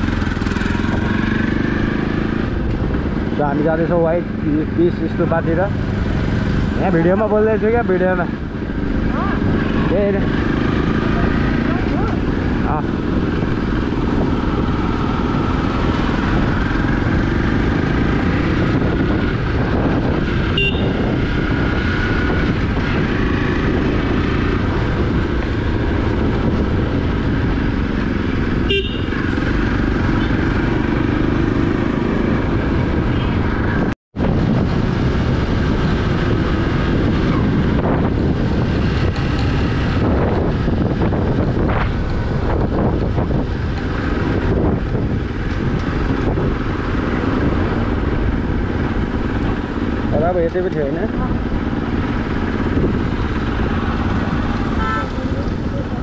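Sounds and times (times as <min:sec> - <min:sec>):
motorcycle engine running: 0:00.0 - 0:56.0
road and wind rumble: 0:00.0 - 0:56.0
horn toots: 0:20.4 - 0:21.2, 0:28.6 - 0:29.4, 0:54.6 - 0:55.6.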